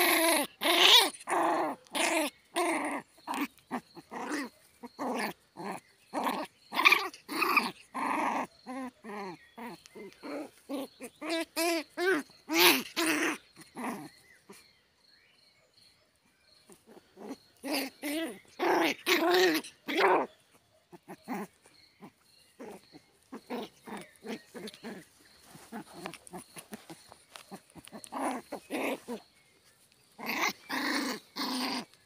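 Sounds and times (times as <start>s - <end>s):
puppy yapping and barking: 0.0s - 13.4s.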